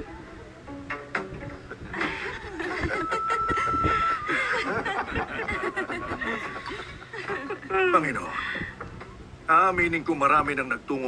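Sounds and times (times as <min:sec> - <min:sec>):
music with held high note: 0:00.0 - 0:04.8
men laughing: 0:01.7 - 0:08.3.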